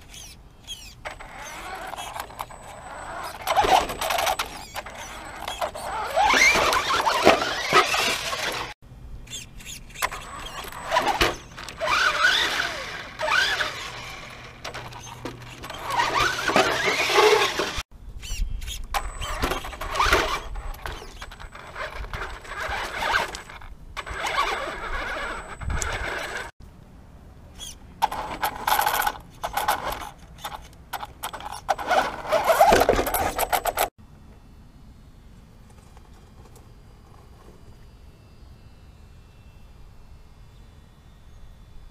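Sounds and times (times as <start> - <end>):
electric motor whining: 0.1 - 17.8, 19.0 - 26.5.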